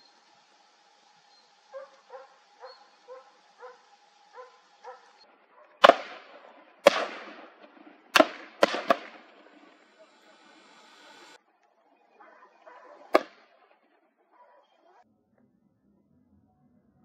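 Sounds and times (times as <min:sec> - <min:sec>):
dog barking: 0:01.7 - 0:05.8, 0:12.2 - 0:13.3, 0:14.3 - 0:15.0
gunshots: 0:05.8 - 0:10.4, 0:13.1 - 0:13.4.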